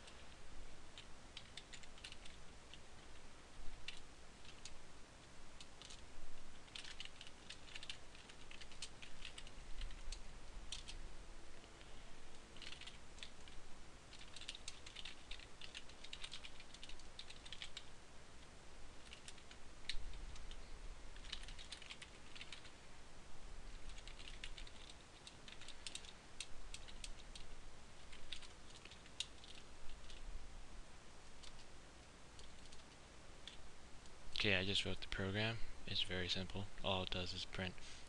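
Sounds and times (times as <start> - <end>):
typing on computer keyboard: 1.0 - 3.2, 3.8 - 4.8, 5.6 - 6.0, 6.6 - 11.0, 12.6 - 17.9, 19.0 - 20.6, 21.2 - 22.7, 23.7 - 30.2, 32.4 - 33.6.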